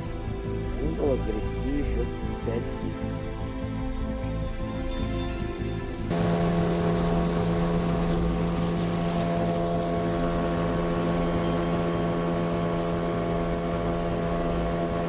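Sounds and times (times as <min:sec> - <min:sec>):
outboard motor running: 0:00.0 - 0:03.4, 0:06.0 - 0:15.0
water rushing from wake: 0:06.1 - 0:15.0.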